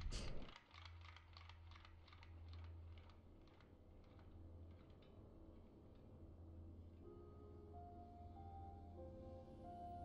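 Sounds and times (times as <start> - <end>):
soft soundtrack music: 5.2 - 10.0.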